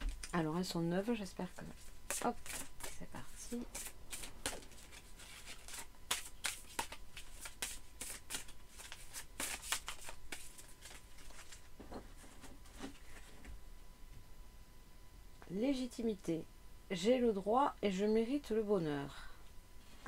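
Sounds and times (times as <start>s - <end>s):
cards being shuffled: 1.7s - 11.7s.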